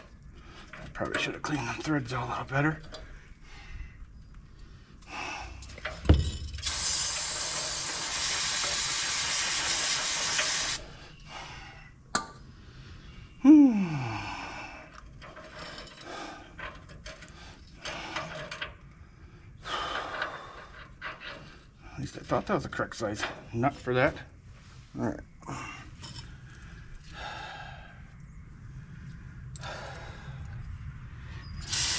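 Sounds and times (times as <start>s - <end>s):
tools clinking and scraping: 0.0s - 3.1s, 5.6s - 8.9s, 15.0s - 18.9s, 19.9s - 24.2s, 25.9s - 26.6s
steady air hiss: 5.1s - 11.6s, 31.6s - 31.9s
thud: 6.0s - 6.6s.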